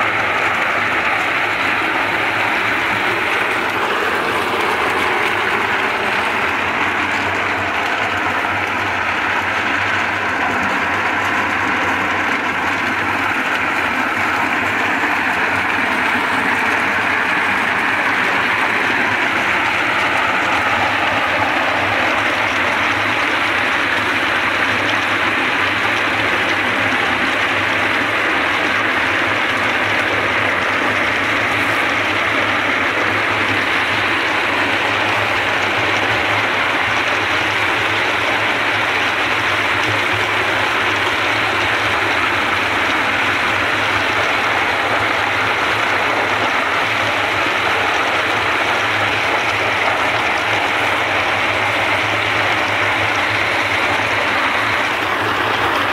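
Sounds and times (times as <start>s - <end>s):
walnuts churning and rattling in drum: 0.0s - 55.9s.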